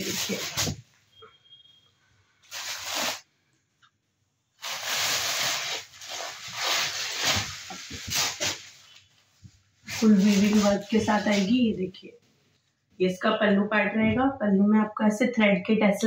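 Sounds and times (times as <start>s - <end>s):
crisp fabric rustling: 4.6s - 11.9s.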